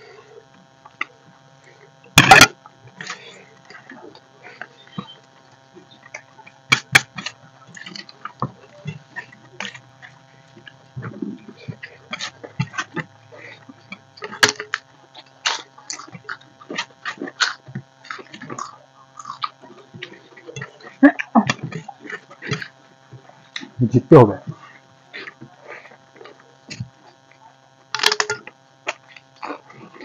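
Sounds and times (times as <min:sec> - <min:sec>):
wet smacks and chewing: 0:03.0 - 0:23.8.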